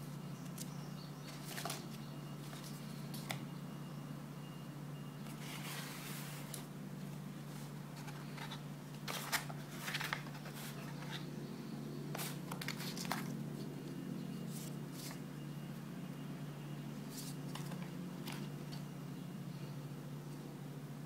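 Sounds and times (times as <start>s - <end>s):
steady low hum: 0.0s - 21.0s
cardboard and paper rustling: 1.3s - 3.4s, 5.3s - 6.7s, 7.5s - 11.3s, 12.1s - 13.6s, 17.1s - 18.8s.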